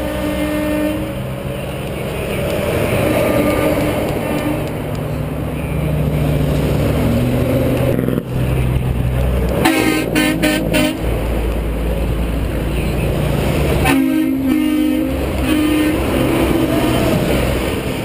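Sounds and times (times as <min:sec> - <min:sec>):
air horn blasts: 0:00.0 - 0:01.2, 0:09.6 - 0:11.1, 0:13.8 - 0:17.2
truck engine and tyres passing: 0:00.0 - 0:18.0.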